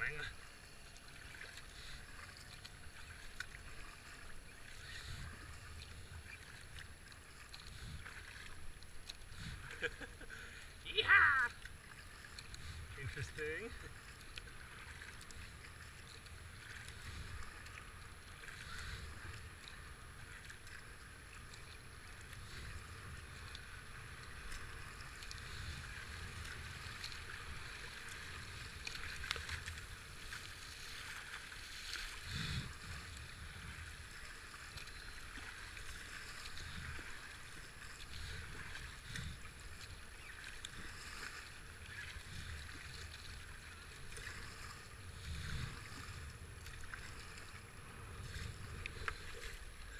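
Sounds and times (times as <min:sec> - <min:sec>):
paddle splashes: 0:00.0 - 0:49.9
river water rushing: 0:10.6 - 0:16.8.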